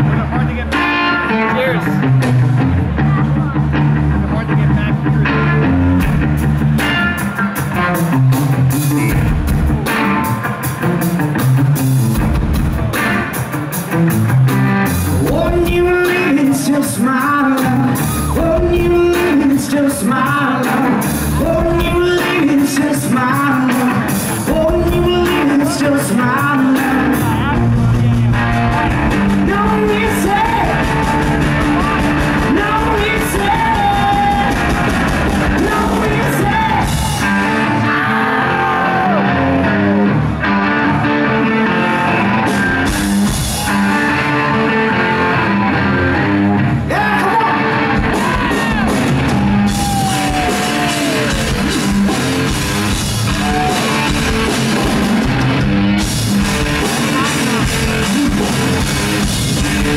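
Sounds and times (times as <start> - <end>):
drum kit: 0.0 - 59.9
electric guitar: 0.0 - 59.9
man singing and shouting: 15.2 - 28.6, 29.4 - 39.4, 46.9 - 52.1, 53.2 - 54.8, 56.6 - 58.9.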